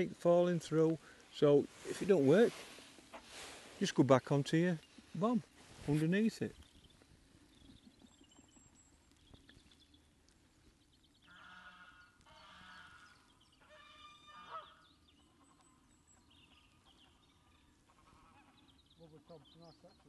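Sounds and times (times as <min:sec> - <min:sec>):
geese honking: 0:11.3 - 0:14.9, 0:17.8 - 0:19.4.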